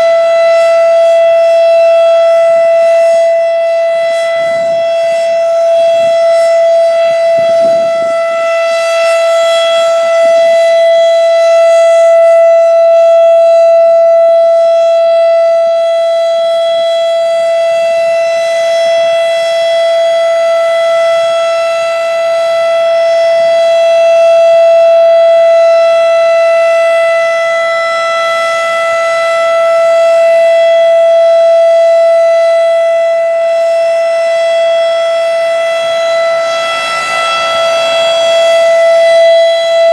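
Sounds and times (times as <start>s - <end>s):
siren steady tone: 0.0s - 39.9s.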